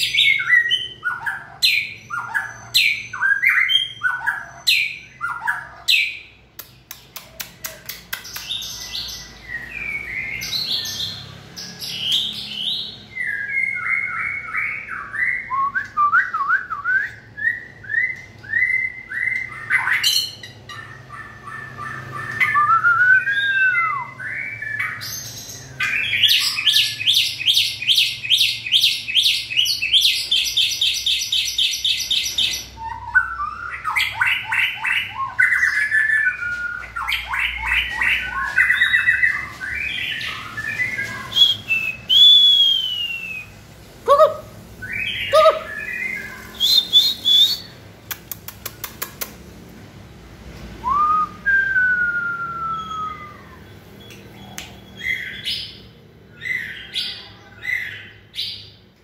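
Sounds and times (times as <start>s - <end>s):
bird singing whistled phrases: 11.9s - 20.4s, 21.8s - 44.2s, 44.8s - 47.8s, 50.8s - 58.7s.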